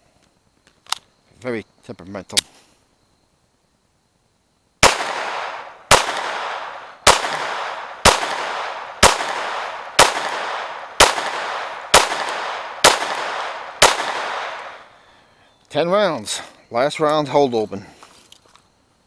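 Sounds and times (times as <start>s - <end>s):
pistol shots with echo: 4.8s - 15.1s.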